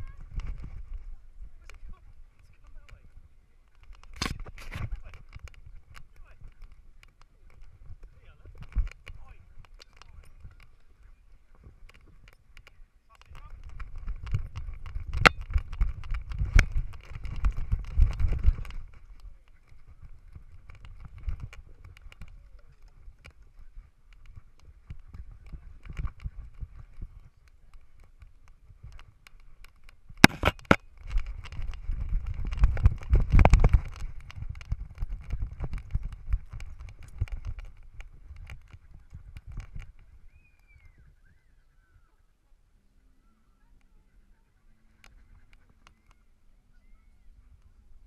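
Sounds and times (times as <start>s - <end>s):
sharp clicks: 3.7s - 11.0s, 11.6s - 40.9s
camera housing thumps and rattles: 3.8s - 7.7s, 13.6s - 19.0s, 28.9s - 40.0s.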